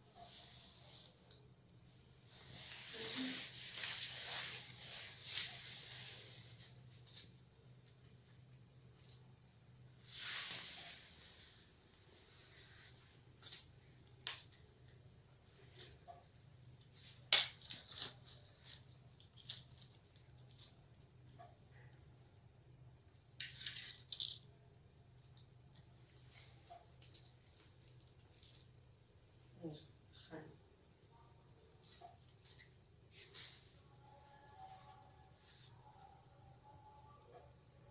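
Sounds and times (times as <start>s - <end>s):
plastic bags rustling: 2.4s - 7.7s, 16.8s - 20.8s.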